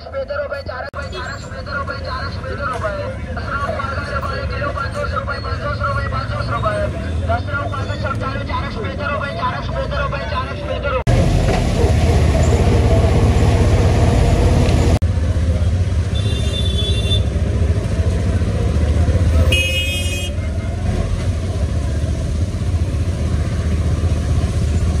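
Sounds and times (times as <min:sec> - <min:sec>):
auto-rickshaw engine rumble: 0:00.0 - 0:25.0
vehicle horn toots: 0:16.1 - 0:17.4, 0:19.4 - 0:20.6.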